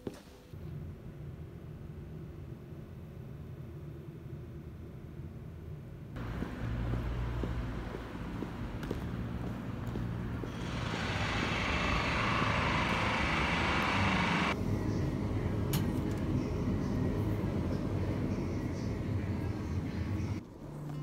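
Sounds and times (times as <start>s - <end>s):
passing vehicle tyres hissing: 6.2s - 14.6s
traffic rumble: 6.2s - 20.9s.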